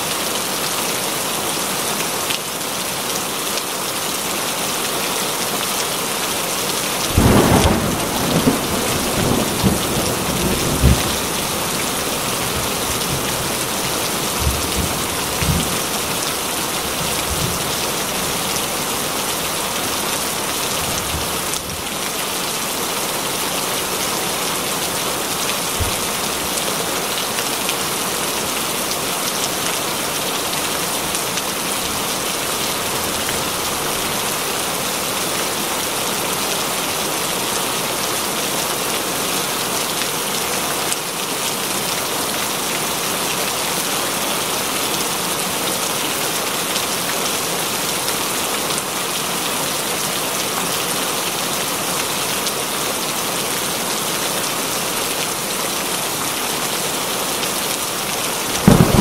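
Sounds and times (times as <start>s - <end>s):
heavy rain: 0.0s - 59.0s
thunder rumbling: 7.2s - 16.0s, 58.5s - 59.0s.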